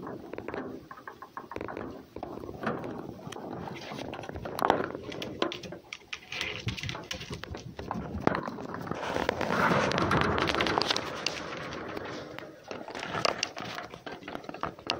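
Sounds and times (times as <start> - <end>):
claws scrabbling on wooden board: 0.0 - 14.9.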